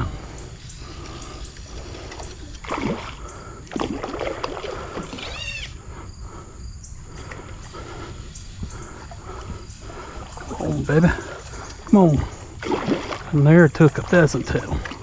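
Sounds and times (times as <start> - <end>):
fish splashing in water: 1.0 - 5.2, 9.2 - 15.0.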